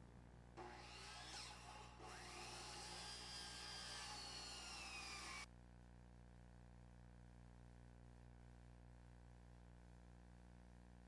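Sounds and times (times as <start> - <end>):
power tool whining on wood: 0.6 - 5.5.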